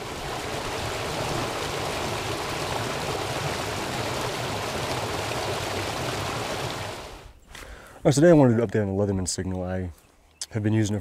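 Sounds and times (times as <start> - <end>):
stream rushing over rocks: 0.0 - 7.3.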